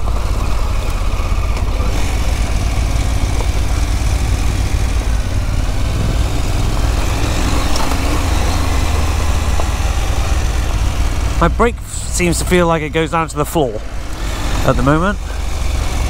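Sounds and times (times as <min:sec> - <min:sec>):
motorcycle engine running: 0:00.0 - 0:16.0
tyres on gravel: 0:00.0 - 0:16.0
wind rushing: 0:05.6 - 0:09.9.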